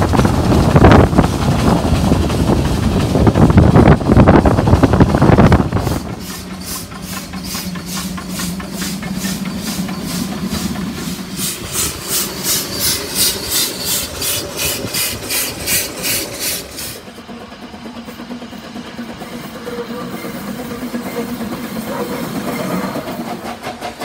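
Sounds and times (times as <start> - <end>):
steam locomotive chuffing: 0.0 - 24.0.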